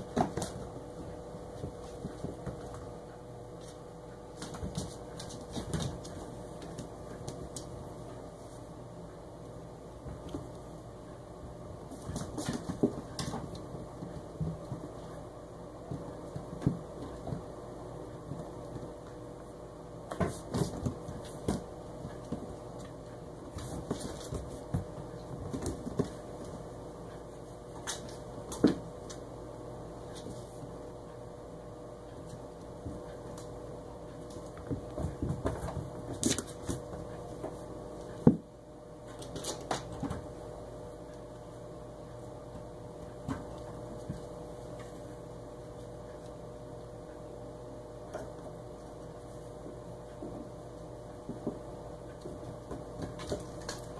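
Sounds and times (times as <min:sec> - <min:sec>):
kittens scampering on floor: 0:00.0 - 0:08.8, 0:11.4 - 0:29.2, 0:32.2 - 0:38.3, 0:39.0 - 0:41.5, 0:48.2 - 0:53.9
steady background hum: 0:00.0 - 0:53.9.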